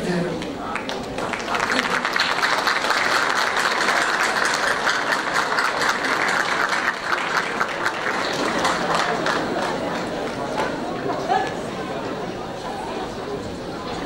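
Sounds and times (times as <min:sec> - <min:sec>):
audience applauding: 0:00.7 - 0:10.9.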